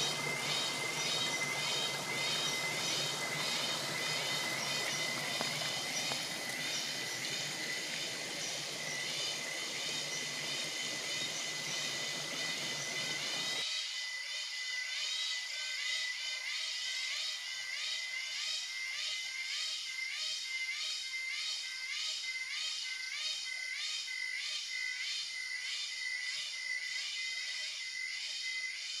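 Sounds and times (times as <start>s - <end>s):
stream flowing over rocks: 0.0s - 13.6s
cicadas calling: 0.0s - 29.0s.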